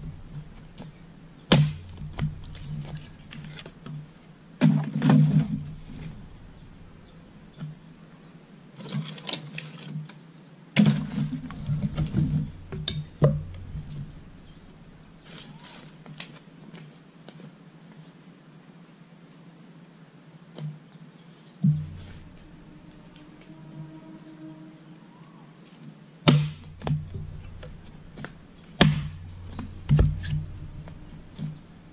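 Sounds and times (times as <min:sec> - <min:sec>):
insects buzzing: 0:00.0 - 0:31.9
axe chopping logs: 0:01.5 - 0:06.6, 0:10.8 - 0:14.3, 0:26.3 - 0:31.7.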